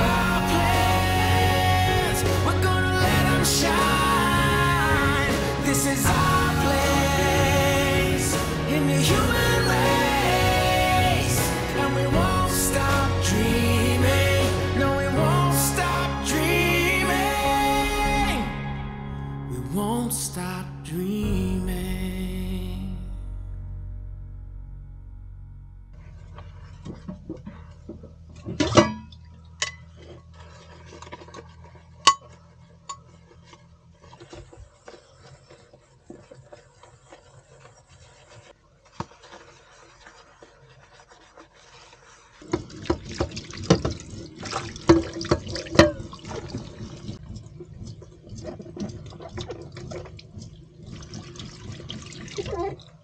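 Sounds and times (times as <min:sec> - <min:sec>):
sponge scrubbing glass bowl: 0:00.0 - 0:18.5, 0:26.0 - 0:53.0
tap water running: 0:38.9 - 0:53.0.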